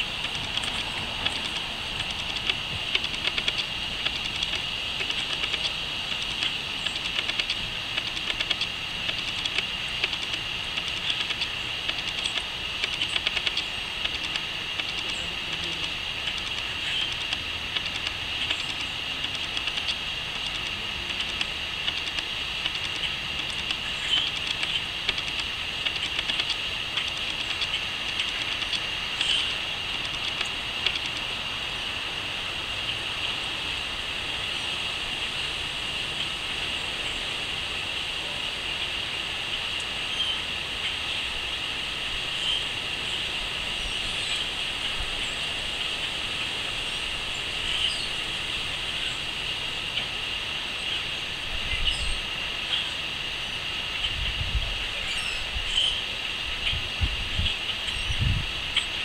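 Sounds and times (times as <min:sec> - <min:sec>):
crickets trilling: 0:00.0 - 0:59.0
bird chirps: 0:22.9 - 0:24.8, 0:46.9 - 0:48.2, 0:50.8 - 0:53.0, 0:55.0 - 0:56.0.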